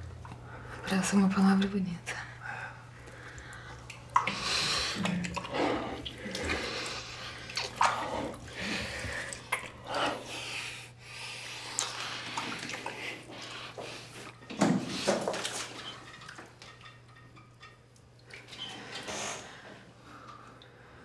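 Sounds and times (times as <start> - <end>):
breathing: 2.1 - 7.5, 8.2 - 14.3, 18.6 - 21.0.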